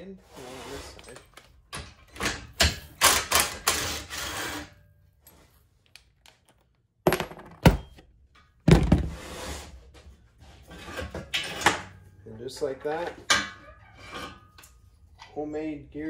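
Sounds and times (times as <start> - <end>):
cordless drill running: 3.3 - 4.6
metal set down on workbench: 7.1 - 7.9.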